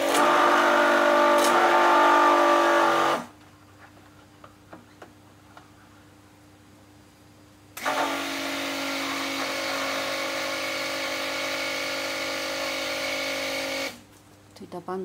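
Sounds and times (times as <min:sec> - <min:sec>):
stick blender motor whine: 0:00.0 - 0:03.3, 0:07.8 - 0:14.0.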